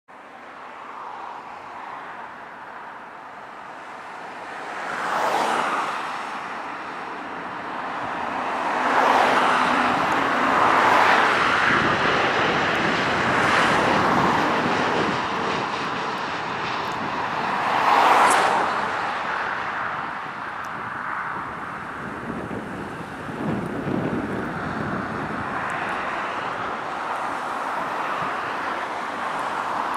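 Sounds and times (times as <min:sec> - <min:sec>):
jet airliner passing overhead: 0:00.2 - 0:29.9.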